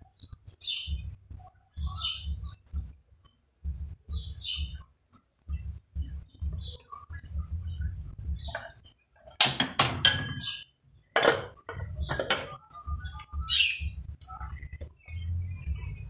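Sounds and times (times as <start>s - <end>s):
metal pot and utensils clanking: 8.5s - 12.6s.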